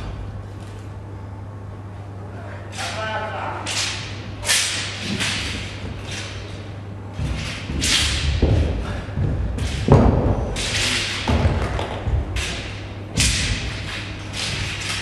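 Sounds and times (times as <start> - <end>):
steady low hum: 0.0 - 15.0
feet thumping on mat: 7.1 - 10.6.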